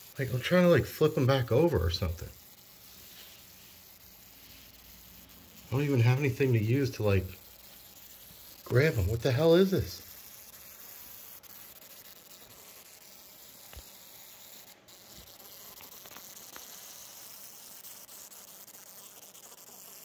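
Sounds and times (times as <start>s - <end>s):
fly wings buzzing: 0.0s - 20.0s
faint ticks: 13.6s - 14.0s, 14.6s - 17.5s.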